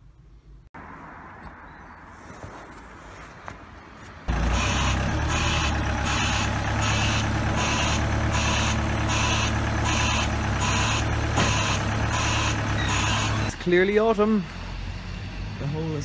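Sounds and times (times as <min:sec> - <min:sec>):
forklift engine hum: 0:04.3 - 0:15.5
reversing alarm beeping: 0:04.4 - 0:13.6.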